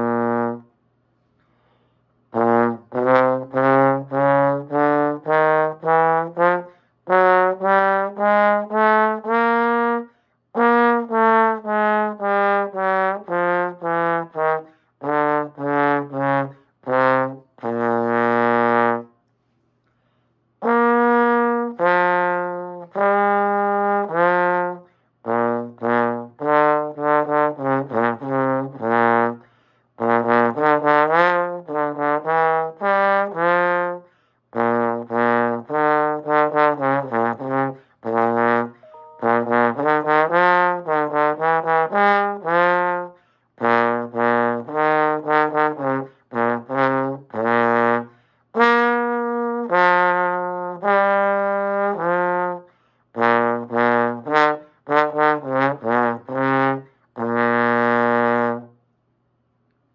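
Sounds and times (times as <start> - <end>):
solo trombone playing: 0.0 - 0.7, 2.3 - 19.2, 20.6 - 58.8.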